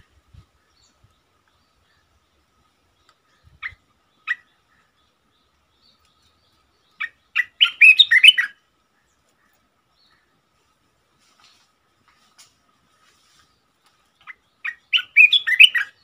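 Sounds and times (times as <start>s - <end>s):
bird calling: 3.0s - 10.4s, 13.0s - 16.0s.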